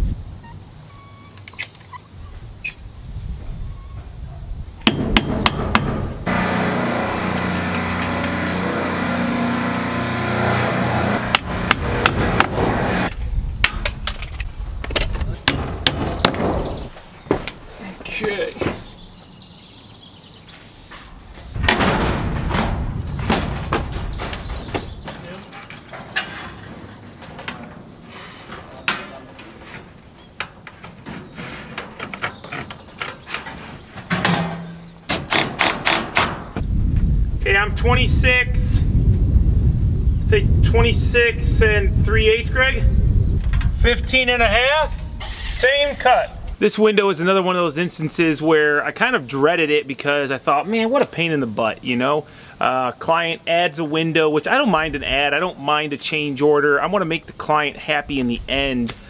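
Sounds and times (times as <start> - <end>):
engine hum: 6.2 - 13.2
footsteps on steel roof: 21.3 - 34.7.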